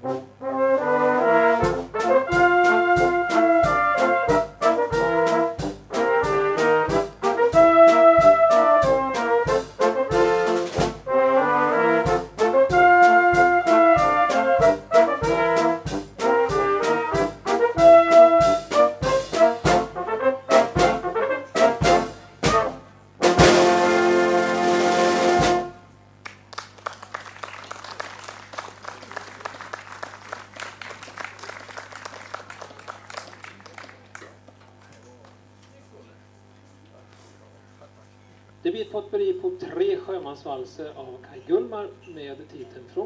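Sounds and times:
brass band playing: 0.0 - 26.0
light scattered clapping: 26.2 - 35.8.

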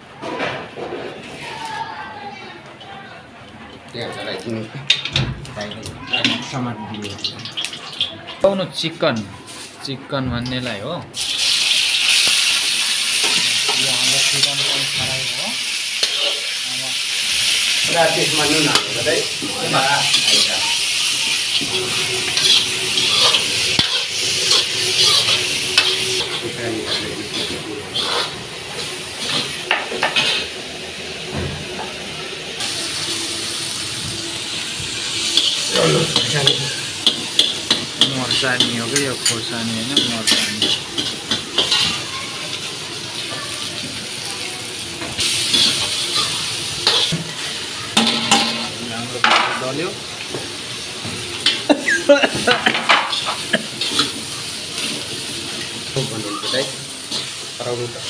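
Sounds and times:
food sizzling in a wok: 4.7 - 58.0
spatula scraping metal: 21.5 - 28.4.

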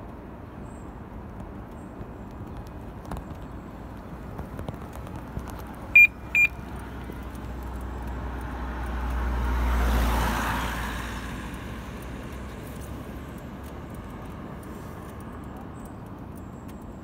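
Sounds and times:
vehicle passing by: 5.1 - 15.6
short high electronic beeps: 6.0 - 6.6.

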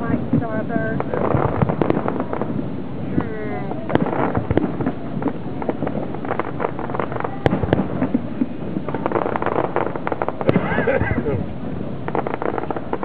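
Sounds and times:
fireworks popping and banging: 0.0 - 13.0.

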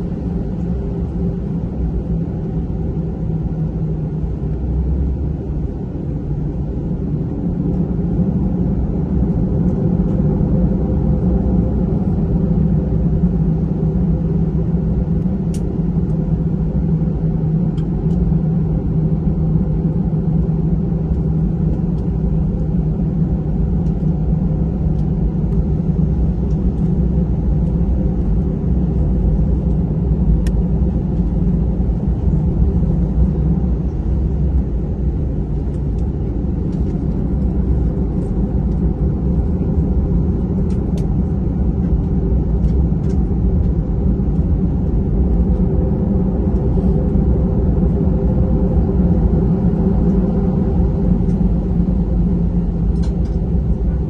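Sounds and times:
cabin air supply: 0.0 - 54.0
jet engines at low power: 0.0 - 54.0.

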